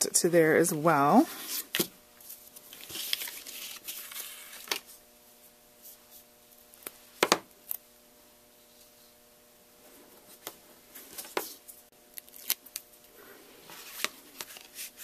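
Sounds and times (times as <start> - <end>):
paper rustling: 1.4 - 5.0, 13.6 - 15.0.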